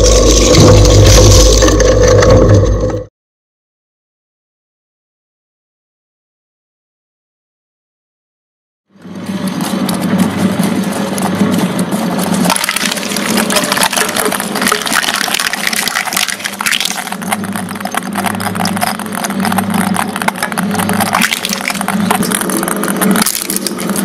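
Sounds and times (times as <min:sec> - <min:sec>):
balls cracking in shredder: 0:00.0 - 0:03.0, 0:09.1 - 0:24.0
shredder motor hum: 0:09.0 - 0:24.0.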